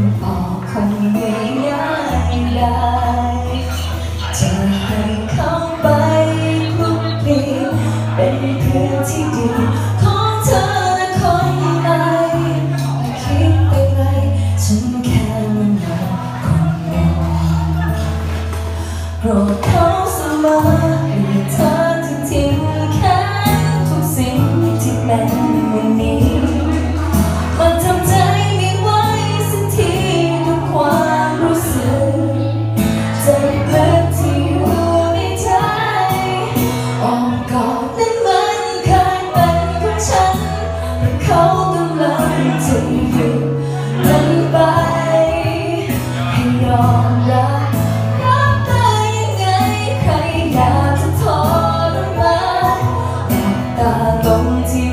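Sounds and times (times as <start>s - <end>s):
backing music with bass notes: 0.0s - 54.9s
second woman singing: 0.0s - 54.9s
woman singing into a microphone: 0.0s - 54.9s.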